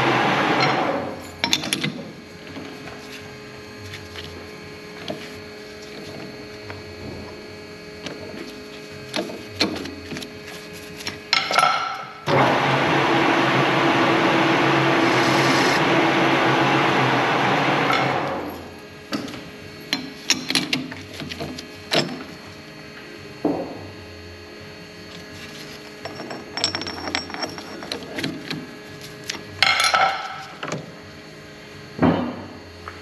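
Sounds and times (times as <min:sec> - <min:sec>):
loud even machine noise with hum: 0:00.0 - 0:33.0
tools and metal parts clinking: 0:01.2 - 0:02.6, 0:09.2 - 0:12.0, 0:26.0 - 0:30.8.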